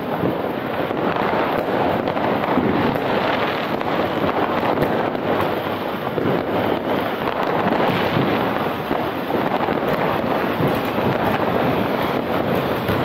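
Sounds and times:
distant fireworks: 0.0 - 13.0
sharp fireworks cracks: 0.0 - 13.0.

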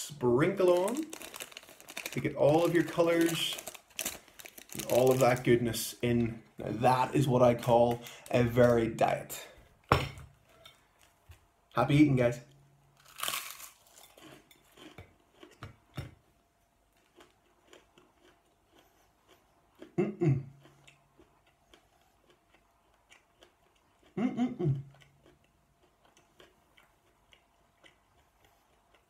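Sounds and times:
crisp crunching of food: 0.1 - 9.4, 13.0 - 15.6, 16.9 - 19.9
chewing: 16.9 - 20.0, 20.6 - 29.0.

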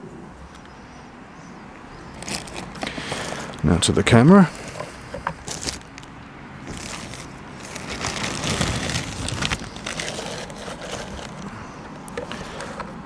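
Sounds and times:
plastic packaging crinkling: 2.2 - 3.7, 5.4 - 11.5.

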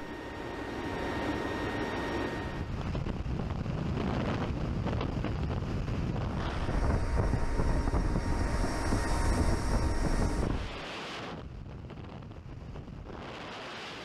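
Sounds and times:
wind buffeting microphone: 0.0 - 0.2, 1.3 - 14.0
rushing air: 0.0 - 4.8, 5.4 - 11.6
aircraft engine drone: 0.0 - 14.0.

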